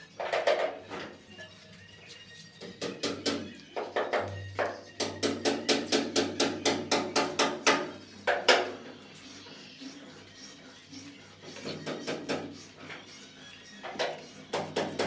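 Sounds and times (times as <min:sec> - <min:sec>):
trowel tapping on tile: 0:02.6 - 0:08.8.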